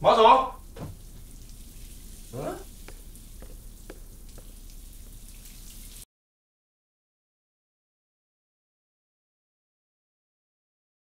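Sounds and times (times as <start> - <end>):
faint steady hiss: 0.0 - 6.0.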